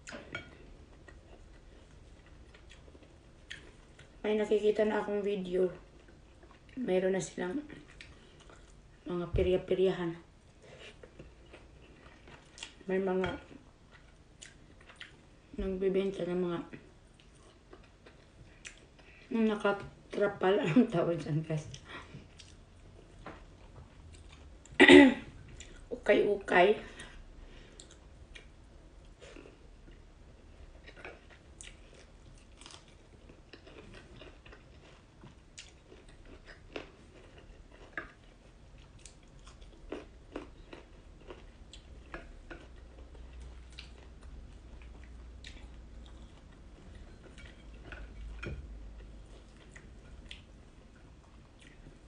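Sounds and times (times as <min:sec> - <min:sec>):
person chewing food: 0:00.0 - 0:04.2, 0:07.8 - 0:08.8, 0:10.5 - 0:12.8, 0:13.4 - 0:15.5, 0:17.1 - 0:19.3, 0:21.7 - 0:24.8, 0:25.4 - 0:25.9, 0:27.0 - 0:52.0.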